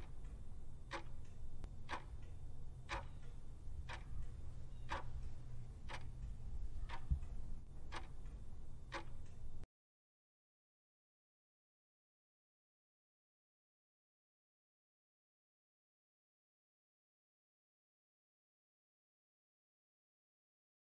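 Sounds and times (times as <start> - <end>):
clock ticking: 0.0 - 9.6
low steady hum: 0.0 - 9.7.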